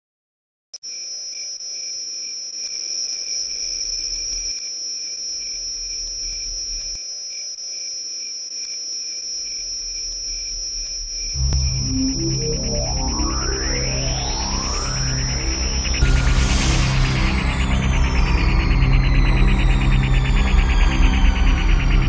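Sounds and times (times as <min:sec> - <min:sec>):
crickets trilling: 0:00.8 - 0:22.0
faint low rumble: 0:10.3 - 0:22.0.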